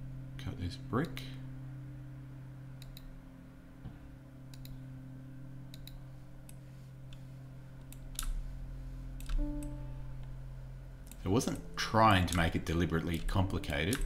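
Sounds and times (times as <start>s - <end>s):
low electrical hum: 0.0s - 14.0s
computer mouse clicking: 2.8s - 3.1s, 4.5s - 4.8s, 5.7s - 7.2s, 7.8s - 8.4s, 9.2s - 9.7s, 12.3s - 14.0s.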